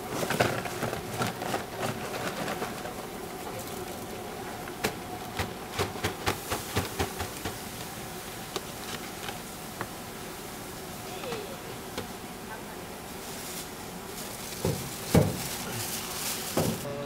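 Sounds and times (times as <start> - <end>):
steady hum: 0.0 - 17.0.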